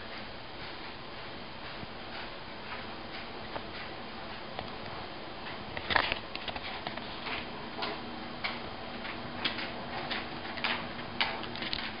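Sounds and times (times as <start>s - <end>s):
dog claws clicking on wood floor: 5.8s - 12.0s.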